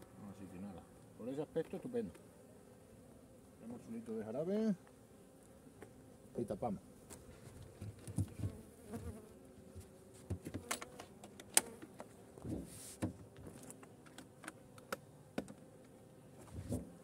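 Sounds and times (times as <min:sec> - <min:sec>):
bees buzzing: 0:00.0 - 0:17.0
hive lid knocks and clicks: 0:07.1 - 0:09.2, 0:09.8 - 0:16.0.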